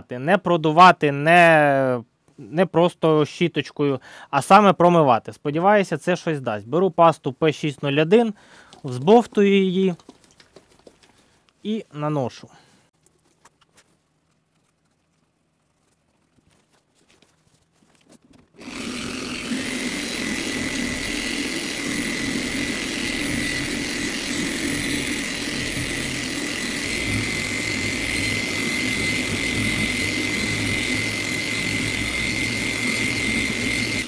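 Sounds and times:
electric polisher whining: 18.6s - 34.0s.

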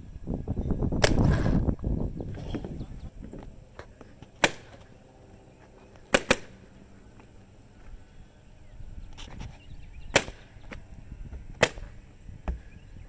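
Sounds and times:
paintball marker shots cracking: 4.3s - 4.9s, 6.1s - 6.6s, 10.1s - 10.5s, 11.6s - 11.9s.

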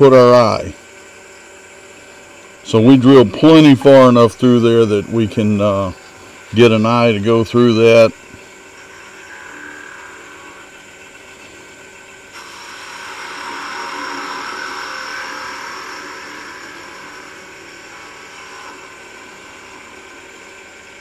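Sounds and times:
wood lathe humming: 0.0s - 21.0s
drill bit boring into wood: 7.6s - 21.0s.

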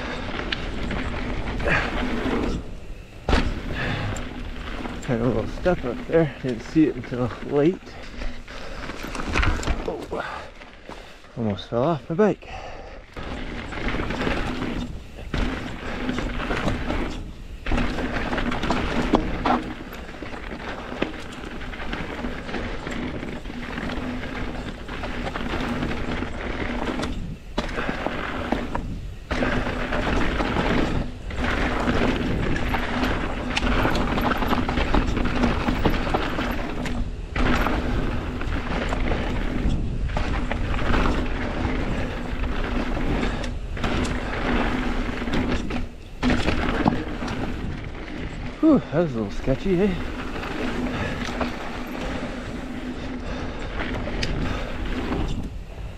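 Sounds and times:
bike rattling: 0.0s - 55.9s
bike tyres rolling over rocks: 0.0s - 55.9s.

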